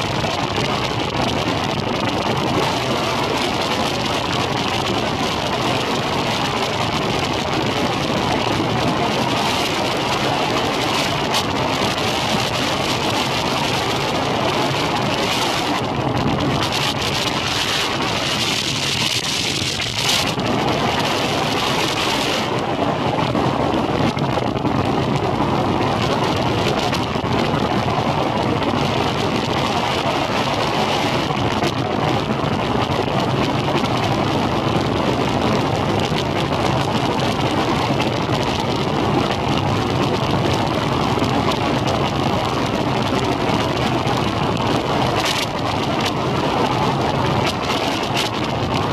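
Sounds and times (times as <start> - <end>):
hiss of water and wind: 0.0 - 48.9
outboard motor running: 0.0 - 48.9.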